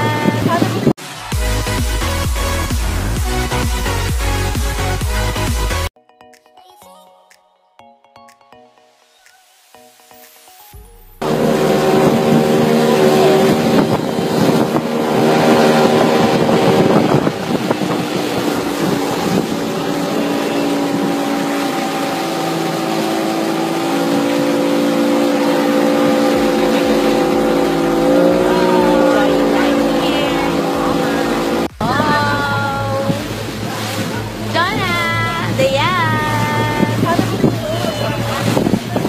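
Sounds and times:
motorboat engine drone: 0.0s - 5.9s, 10.7s - 39.0s
rushing water: 0.0s - 5.9s, 8.8s - 39.0s
wind buffeting microphone: 11.2s - 39.0s.

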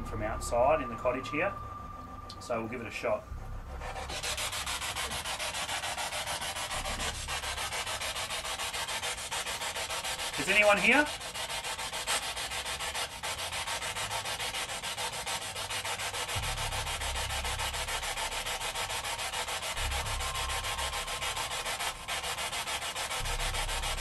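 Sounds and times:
low rumble: 0.0s - 5.7s, 19.7s - 24.0s.

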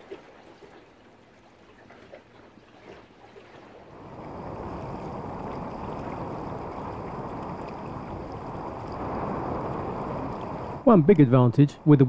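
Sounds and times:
water rushing along boat hull: 0.0s - 12.0s
wind noise: 3.9s - 12.0s.

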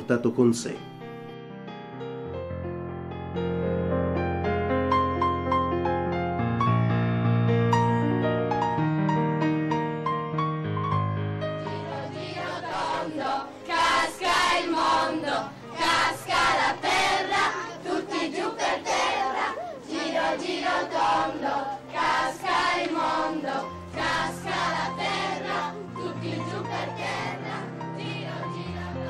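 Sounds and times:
children singing in chorus: 11.7s - 29.0s.

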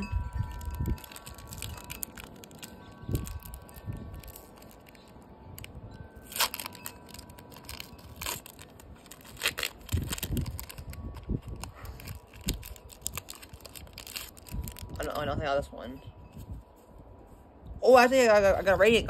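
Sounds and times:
foil wrapper tearing and crinkling: 0.3s - 15.1s.

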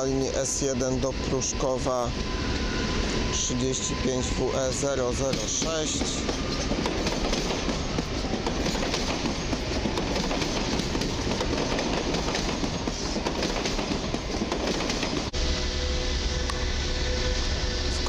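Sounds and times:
train wheels rolling: 0.0s - 15.4s
wheels clattering over rail joints: 5.0s - 15.3s.

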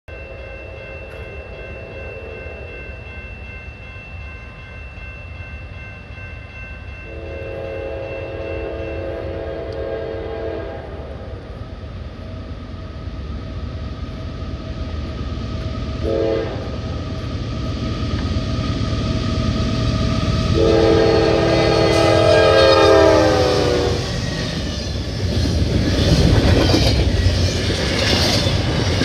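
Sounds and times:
low rumble of train: 0.1s - 29.0s
locomotive air horn blasts: 7.1s - 10.9s, 16.0s - 16.7s, 20.6s - 24.1s.

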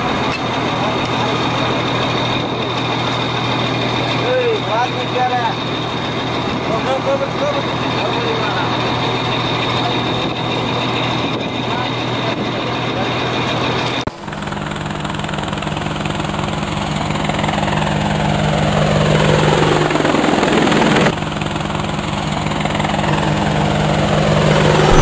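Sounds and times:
drone propellers buzzing: 14.1s - 15.6s, 22.6s - 25.0s
boat engine running: 14.1s - 25.0s.

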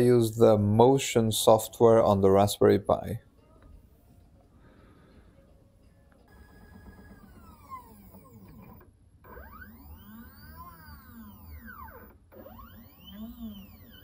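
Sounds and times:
stepper motors whining: 6.3s - 14.0s.

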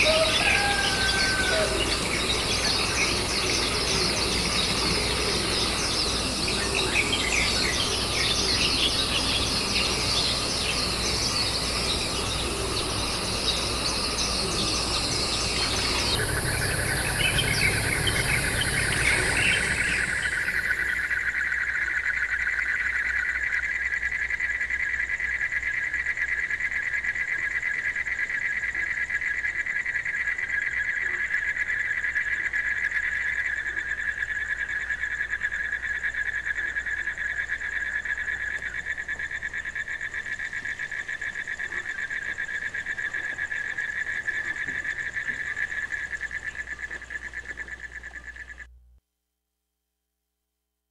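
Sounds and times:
small birds chirping: 0.0s - 20.8s
night insect chorus trilling: 0.0s - 48.7s.

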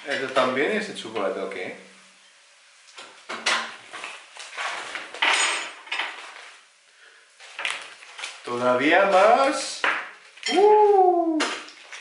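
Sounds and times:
plastic packaging crinkling: 7.4s - 9.5s.

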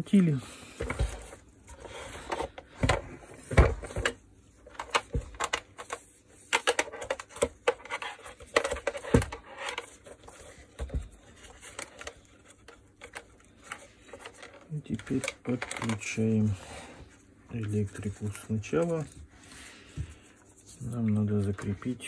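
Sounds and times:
hands handling plastic housing: 0.8s - 16.3s.

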